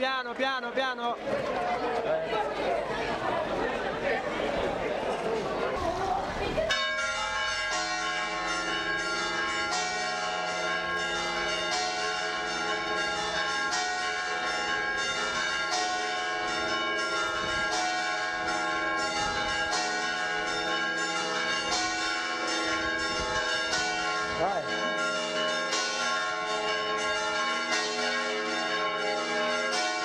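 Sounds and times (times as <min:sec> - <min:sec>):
bells ringing: 0:06.7 - 0:30.0.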